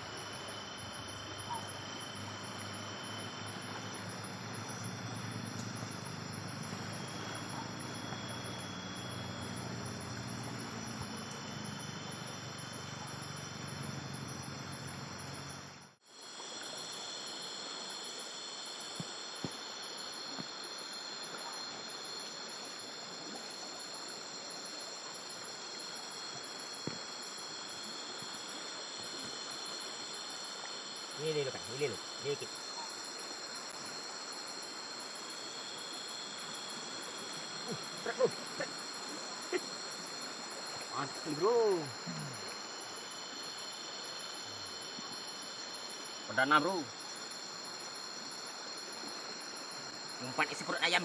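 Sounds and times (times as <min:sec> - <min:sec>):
crickets and insects chirring: 0:00.0 - 0:51.0
fast-pulsing insect trill: 0:00.0 - 0:51.0
faint ticks: 0:05.5 - 0:05.9.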